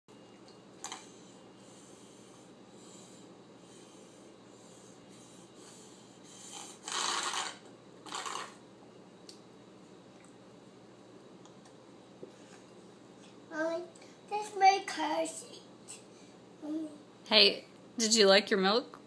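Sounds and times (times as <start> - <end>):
toddler slurping through a straw: 6.4 - 8.5.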